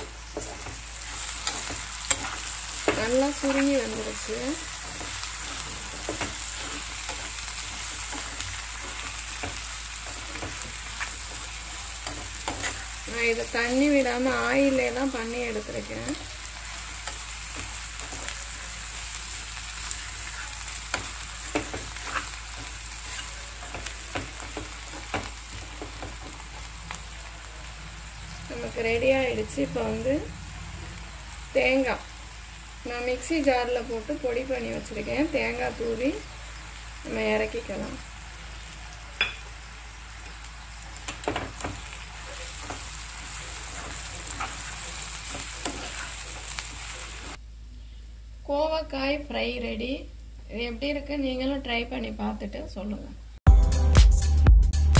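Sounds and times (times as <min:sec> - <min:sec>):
spoon scraping pan: 0:00.0 - 0:16.4, 0:19.9 - 0:26.7, 0:41.1 - 0:47.4
vegetables sizzling in oil: 0:00.0 - 0:47.4.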